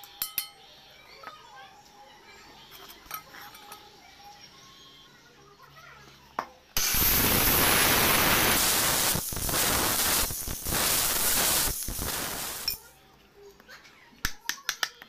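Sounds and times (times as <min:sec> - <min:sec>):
air blower rush: 0:06.8 - 0:12.8.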